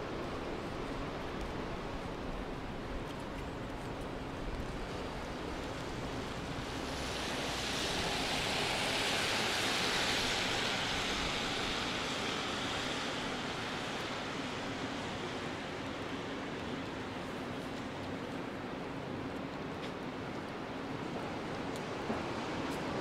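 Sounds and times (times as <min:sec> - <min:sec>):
tyres hissing on wet road: 0:04.6 - 0:23.0.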